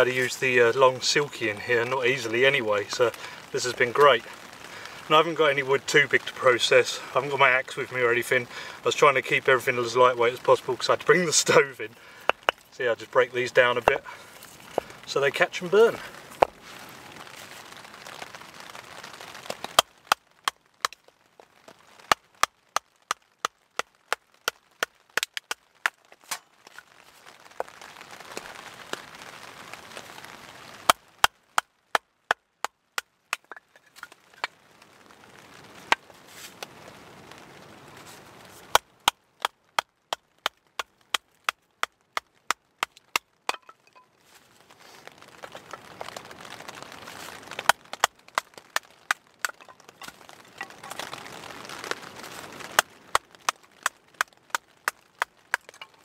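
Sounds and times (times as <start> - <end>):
sharp wooden knocks: 12.2 - 12.6, 16.4 - 16.6, 22.1 - 26.4, 30.9 - 34.5, 38.7 - 44.0, 47.6 - 51.2, 52.7 - 56.0.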